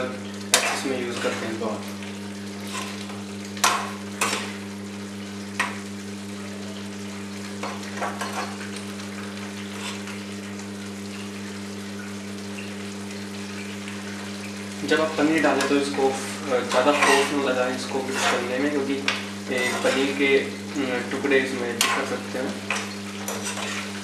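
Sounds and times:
gravy sizzling: 0.0 - 24.0
ladle stirring in a pan: 0.4 - 4.7, 7.6 - 10.4, 14.8 - 24.0.

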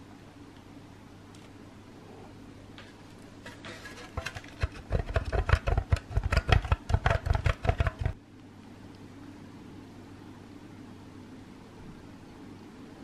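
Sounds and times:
cheese rasping on metal grater: 3.5 - 8.2.

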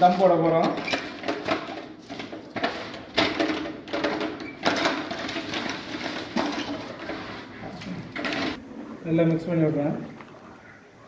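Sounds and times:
boiling water: 6.9 - 10.7.

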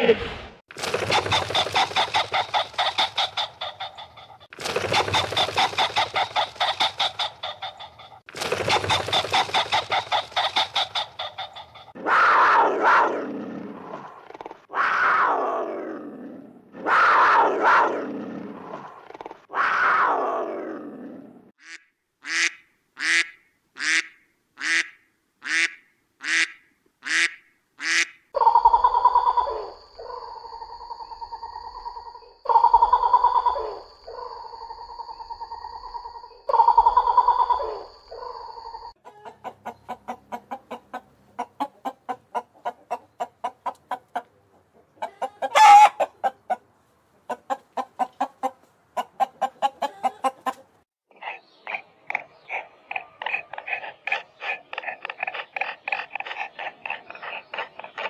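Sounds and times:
rapid pulsing calls: 0.8 - 12.7, 27.8 - 41.0
short evenly spaced calls: 0.9 - 12.0, 21.6 - 44.2, 47.3 - 58.0
farm animal and bird calls: 1.0 - 15.4, 27.1 - 58.0
long falling calls: 28.4 - 39.2.

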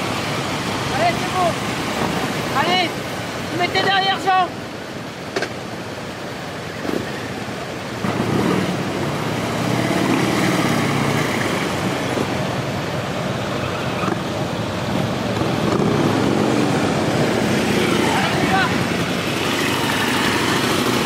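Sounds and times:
street and wind noise hiss: 0.0 - 21.0.

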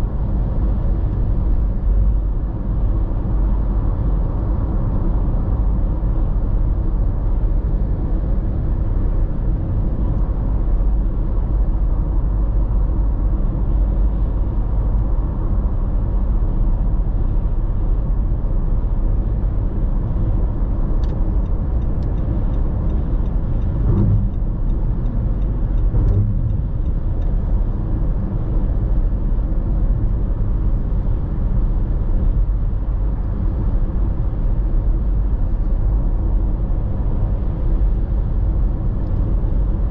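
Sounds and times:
car cabin road noise: 0.0 - 39.9
low thumps: 23.7 - 27.2.

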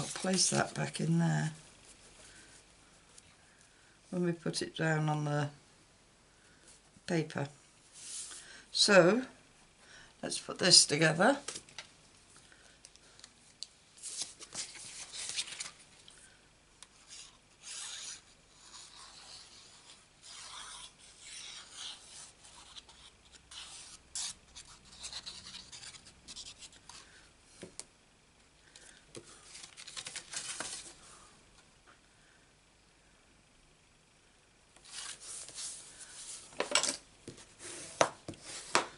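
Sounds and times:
paper sheets rustling: 0.0 - 1.0, 14.0 - 15.8, 29.2 - 31.1, 34.8 - 38.9.

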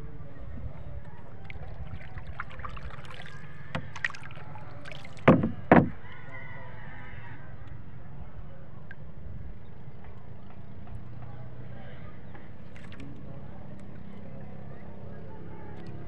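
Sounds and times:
paddle strokes in water: 0.6 - 6.0
light knocks: 5.2 - 6.0.

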